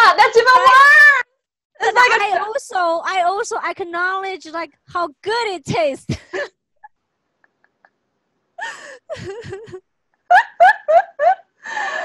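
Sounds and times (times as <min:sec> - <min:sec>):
woman laughing: 0:06.1 - 0:06.5, 0:08.6 - 0:12.0.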